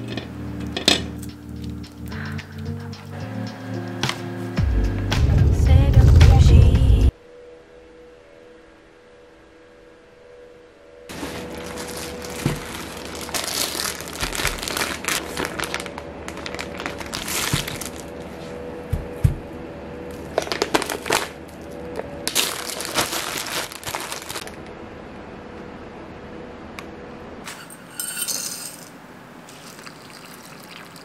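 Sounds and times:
plastic bags crinkling: 11.1s - 18.4s, 20.1s - 24.6s.

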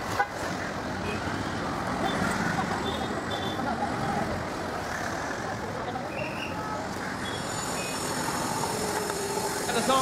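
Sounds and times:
passing vehicle noise: 0.0s - 10.0s.

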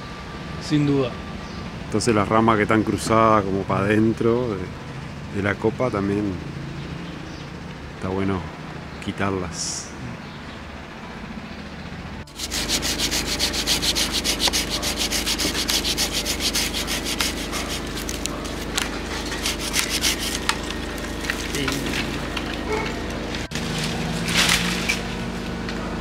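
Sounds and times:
saw cutting through branch: 12.3s - 22.8s.

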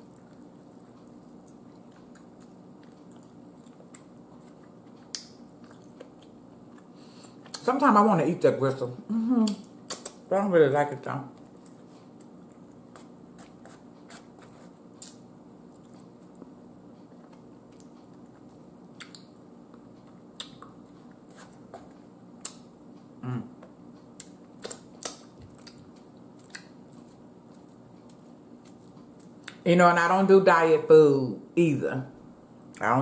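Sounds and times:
chewing with wet mouth clicks: 0.0s - 7.7s, 9.4s - 10.2s, 11.3s - 22.7s, 23.6s - 29.6s
low voice hum: 23.2s - 23.7s.

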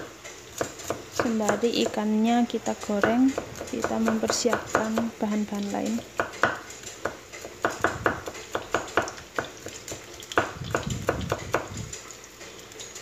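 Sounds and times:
knife chopping on wooden board: 0.0s - 2.0s, 2.8s - 5.1s, 6.2s - 11.8s.

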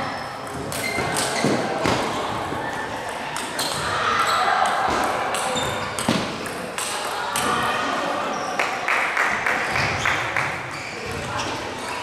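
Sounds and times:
table tennis balls clicking: 4.7s - 7.4s.

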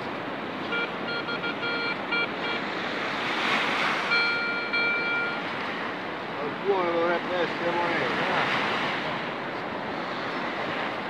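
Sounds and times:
surf washing: 0.0s - 11.0s
metal detector beeping: 0.6s - 2.6s, 4.1s - 5.4s.

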